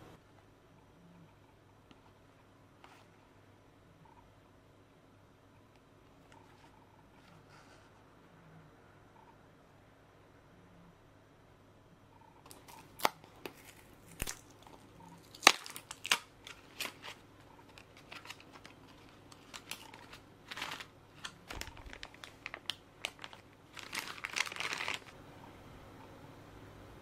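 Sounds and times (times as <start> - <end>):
plastic bag crinkling: 12.5 - 25.2.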